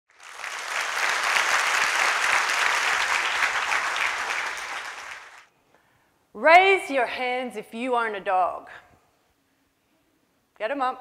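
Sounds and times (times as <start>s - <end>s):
audience applauding: 0.1s - 5.5s.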